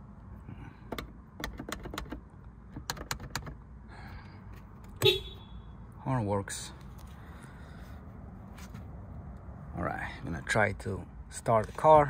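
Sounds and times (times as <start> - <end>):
car horn blast: 5.0 - 5.7.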